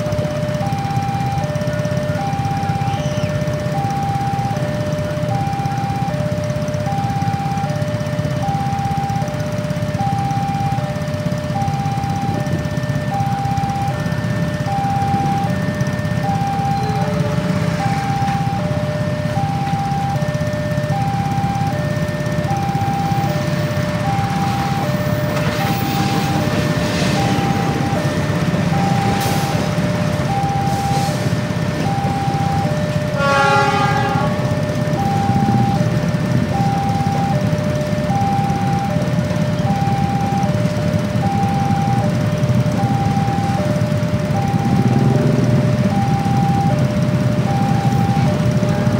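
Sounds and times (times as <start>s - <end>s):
motorcycle engines idling: 0.0s - 48.9s
two-tone crossing alarm: 0.0s - 48.9s
train passing rumble: 11.2s - 48.9s
train horn: 33.1s - 34.6s.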